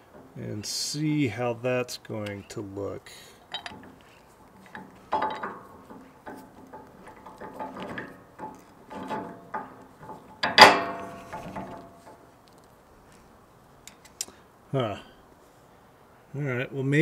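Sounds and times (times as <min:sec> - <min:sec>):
metal hardware clinking: 0:03.4 - 0:12.7
ringing metal clank: 0:03.5 - 0:04.0, 0:04.6 - 0:12.2.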